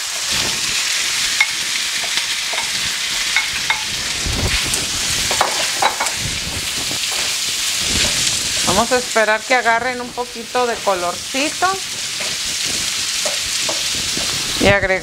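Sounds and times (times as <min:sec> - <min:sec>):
sausages sizzling in hot oil: 0:00.0 - 0:15.0
wooden spoon knocking and scraping: 0:13.2 - 0:14.3.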